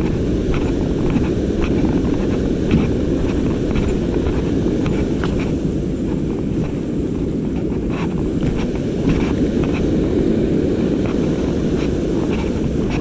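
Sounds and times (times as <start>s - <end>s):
shallow river rushing over rocks: 0.0s - 13.0s
wind buffeting microphone: 0.0s - 13.0s.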